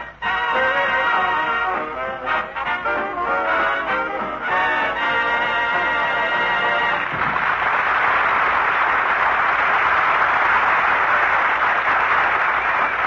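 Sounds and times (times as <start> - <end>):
band music: 0.0 - 7.2
audience applauding: 5.0 - 13.0.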